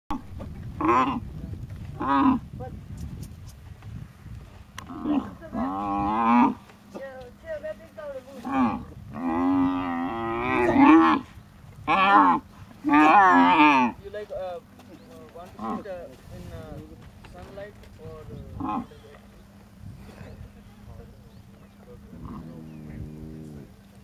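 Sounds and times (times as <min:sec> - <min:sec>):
camel groaning: 0:00.1 - 0:02.6, 0:04.8 - 0:07.2, 0:08.3 - 0:14.0, 0:18.4 - 0:19.2, 0:21.6 - 0:23.8.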